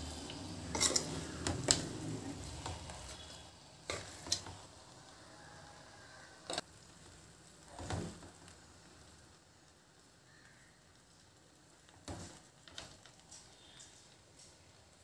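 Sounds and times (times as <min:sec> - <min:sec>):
metal spoon scraping a pan: 0:00.0 - 0:04.6
faint frying hiss: 0:00.0 - 0:15.0.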